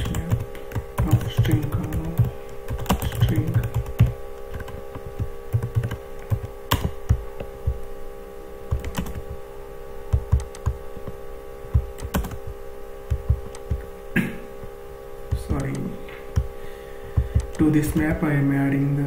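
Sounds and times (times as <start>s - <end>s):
computer keyboard keystrokes: 0.0s - 7.8s, 8.7s - 9.4s, 10.1s - 12.5s, 13.1s - 13.9s, 15.3s - 16.5s, 17.2s - 18.1s
steady electrical hum: 0.0s - 19.0s.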